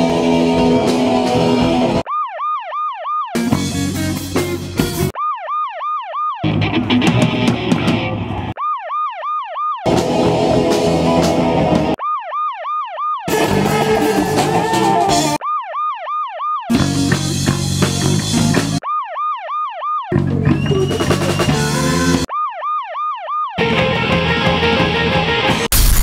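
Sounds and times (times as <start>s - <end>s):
rock music with electric guitars: 0.0s - 2.0s, 3.4s - 5.1s, 6.4s - 8.5s, 9.9s - 12.0s, 13.3s - 15.4s, 16.7s - 18.8s, 23.6s - 25.7s
yelping electronic siren: 0.0s - 3.8s, 5.0s - 6.9s, 7.9s - 17.8s, 18.6s - 24.6s.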